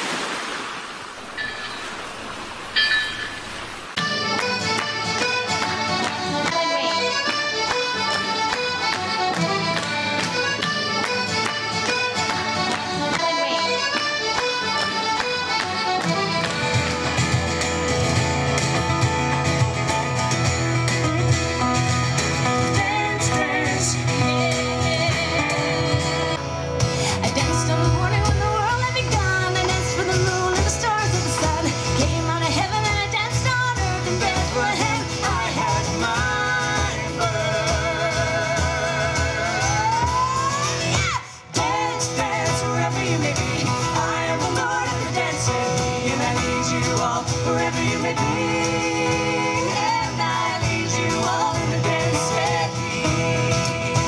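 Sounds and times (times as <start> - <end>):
acoustic guitar: 1.3 - 54.0
instrumental folk tune: 2.8 - 54.0
bass and band playing: 3.8 - 54.0
person singing: 6.3 - 9.9, 13.0 - 16.6, 22.6 - 26.4, 27.0 - 54.0.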